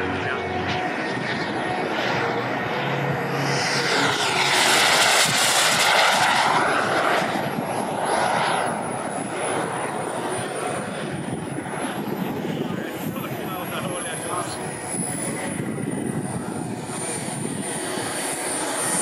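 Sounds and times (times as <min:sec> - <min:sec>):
model jet turbine whine passing: 0:00.0 - 0:19.0.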